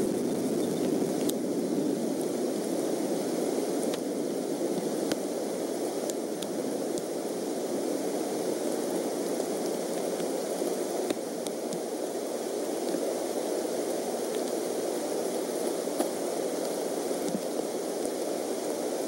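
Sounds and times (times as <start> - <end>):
steady rain hiss: 0.0 - 19.0
faint ticks of raindrops: 0.6 - 1.4, 3.7 - 4.1, 4.7 - 5.2, 6.0 - 7.1, 9.2 - 11.9, 14.2 - 18.3.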